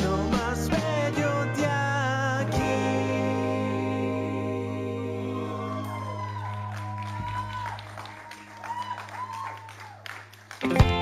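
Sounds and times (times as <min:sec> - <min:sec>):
live rock band playing: 0:00.0 - 0:04.0, 0:10.6 - 0:11.0.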